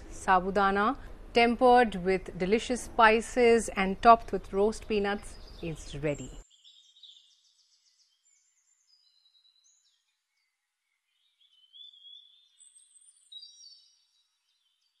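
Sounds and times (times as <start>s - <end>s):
birds chirping and whistling: 5.3s - 15.0s.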